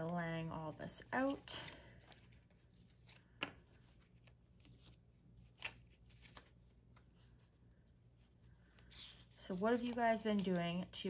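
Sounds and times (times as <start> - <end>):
sharp paper snaps: 5.5 - 6.5
banknotes rustling and flicking: 8.4 - 11.0.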